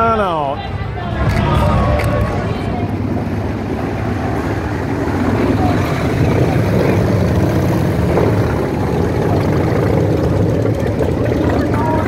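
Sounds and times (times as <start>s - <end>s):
motorcycle engines rumbling: 0.0s - 12.0s.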